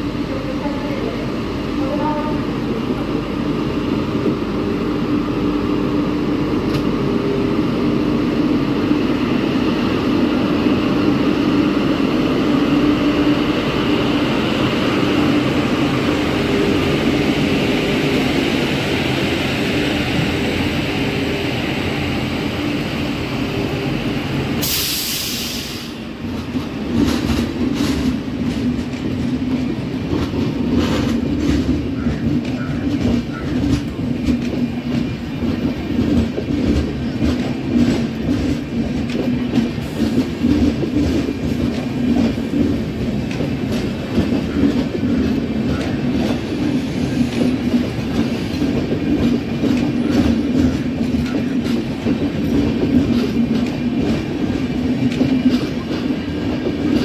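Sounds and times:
electric locomotive hum: 0.0s - 57.0s
loud hiss: 24.6s - 26.0s
train wheels clickety-clack: 24.6s - 57.0s.

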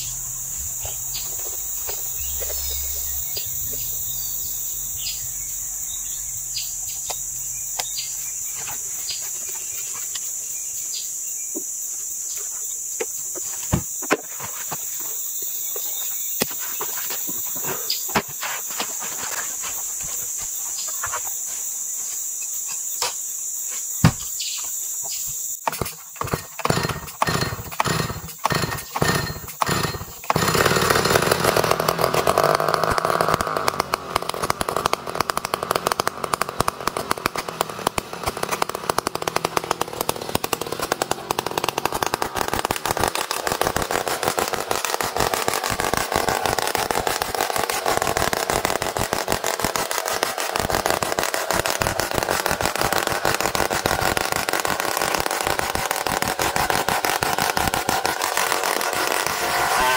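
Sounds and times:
chainsaw revving: 0.0s - 8.0s, 25.8s - 59.9s
insects droning: 0.0s - 59.9s.

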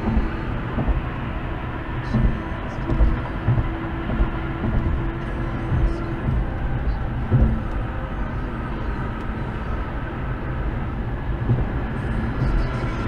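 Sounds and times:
car road noise rumble: 0.0s - 13.0s
brief thumps: 2.1s - 7.9s.

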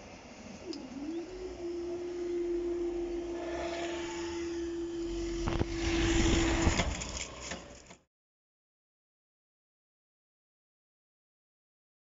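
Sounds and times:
barrier drive unit humming: 0.0s - 8.0s.

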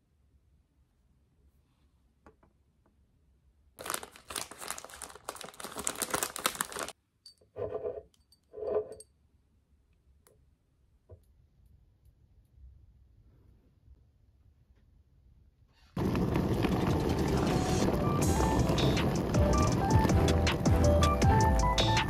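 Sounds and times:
plastic wrapping crinkling and tearing: 3.8s - 7.0s.

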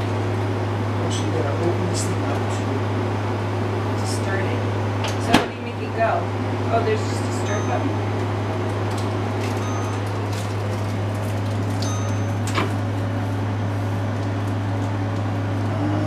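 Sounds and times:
microwave oven humming: 0.0s - 16.0s.

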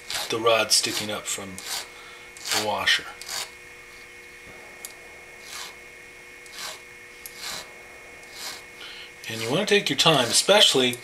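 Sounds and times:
hand file stroking metal: 0.0s - 4.1s, 5.4s - 5.8s, 6.4s - 8.7s, 9.3s - 10.8s.

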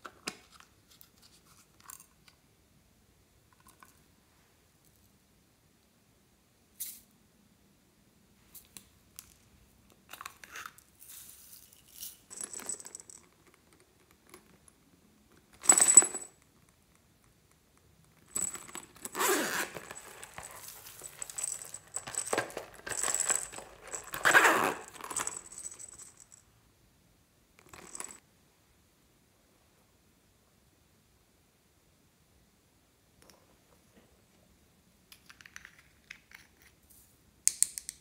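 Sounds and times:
small jingle bell jingling: 18.3s - 26.5s.

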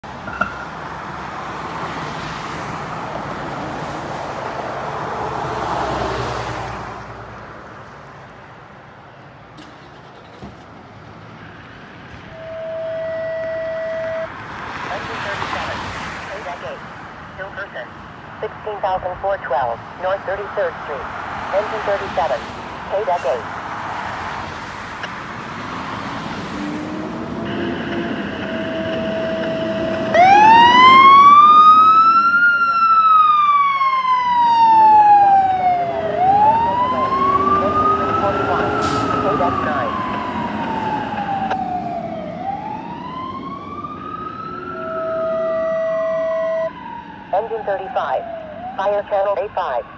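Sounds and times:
car passing: 0.0s - 49.9s
traffic hum: 0.0s - 49.9s
fire engine siren winding up: 12.3s - 14.4s, 26.9s - 48.8s
fire engine running: 16.3s - 23.6s, 25.2s - 49.9s.

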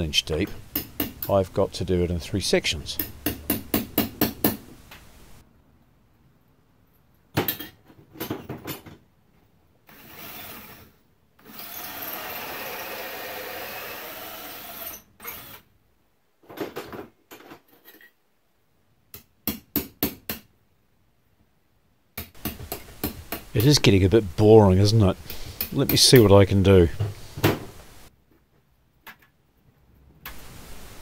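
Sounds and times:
power drill cutting block: 9.9s - 15.6s.

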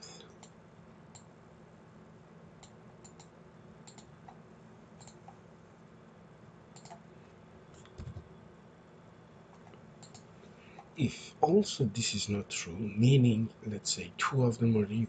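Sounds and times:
faint low hum: 0.0s - 15.0s
mouse and keyboard clicks: 6.8s - 7.0s, 9.5s - 10.3s.

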